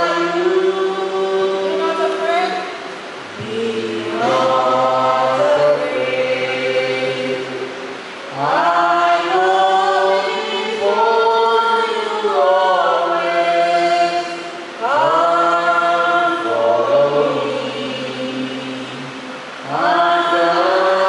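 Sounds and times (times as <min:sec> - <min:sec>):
choir singing a hymn: 0:00.0 - 0:21.0.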